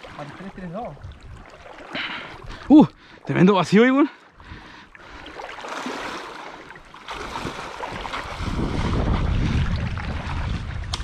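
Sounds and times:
water sloshing around wading legs: 0:00.0 - 0:03.4, 0:04.1 - 0:11.0.

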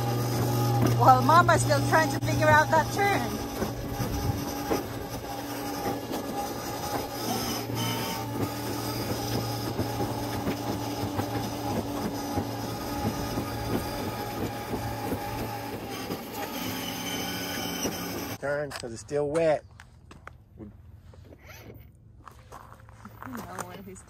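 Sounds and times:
electric toy car motor hum: 0:00.0 - 0:18.4
plastic wheels rattling on concrete: 0:00.2 - 0:18.4.

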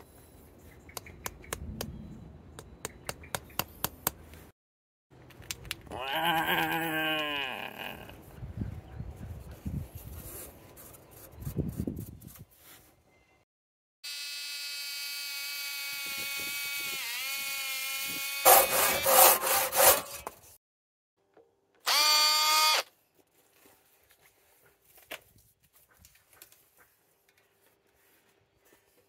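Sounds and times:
cordless drill motor whine: 0:14.1 - 0:18.5, 0:21.9 - 0:22.9
drill grinding into wood: 0:14.1 - 0:20.0, 0:21.9 - 0:22.9.

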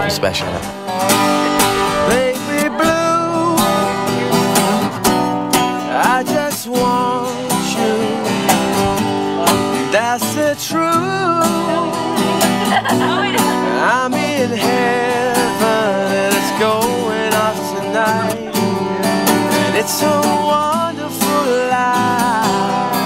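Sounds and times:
acoustic guitars strumming: 0:00.0 - 0:23.0
lap guitar sliding between notes: 0:00.0 - 0:23.0.

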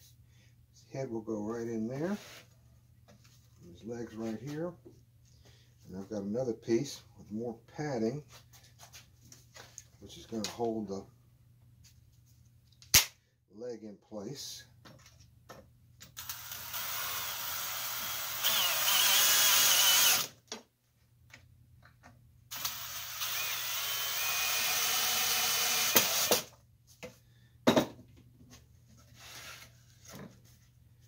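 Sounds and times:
cordless drill running: 0:16.2 - 0:20.3, 0:22.5 - 0:26.5.

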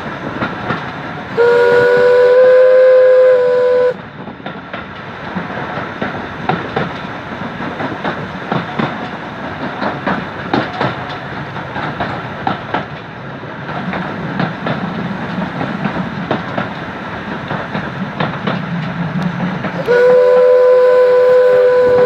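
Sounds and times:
train wheels clicking over rail joints: 0:00.0 - 0:22.0
steam locomotive whistle: 0:01.3 - 0:04.0, 0:19.8 - 0:22.0.

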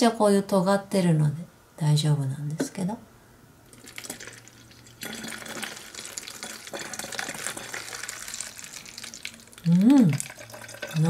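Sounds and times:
water pouring into a bottle: 0:03.7 - 0:11.0.

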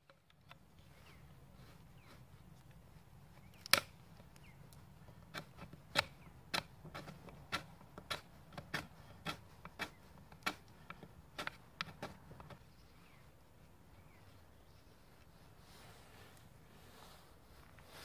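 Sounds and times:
knife cracking dry wood: 0:03.4 - 0:12.2.

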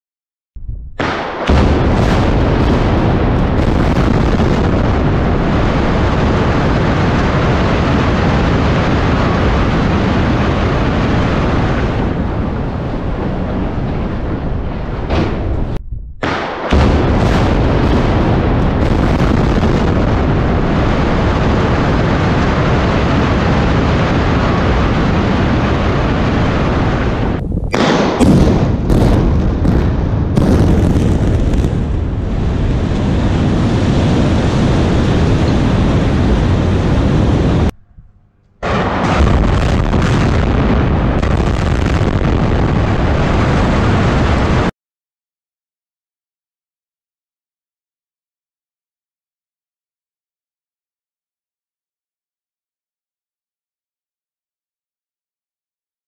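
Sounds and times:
rumble of blasting and collapse: 0:00.6 - 0:44.7.

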